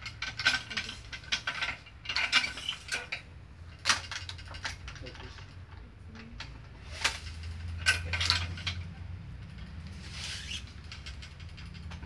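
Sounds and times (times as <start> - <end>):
hiss of string drawn through: 10.0 - 10.7.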